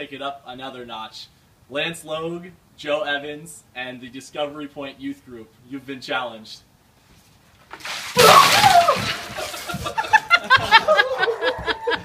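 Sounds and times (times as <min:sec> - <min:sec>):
ice water splashing: 0:07.6 - 0:10.2
gasping laughter: 0:09.4 - 0:12.0.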